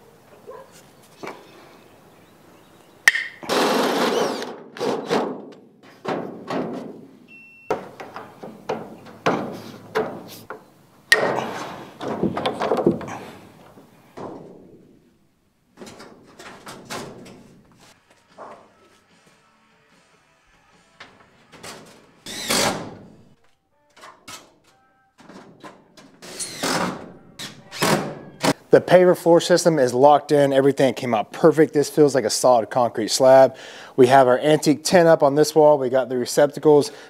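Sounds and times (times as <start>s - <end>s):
dull knocks and thuds: 7.7s - 10.6s, 11.2s - 14.8s.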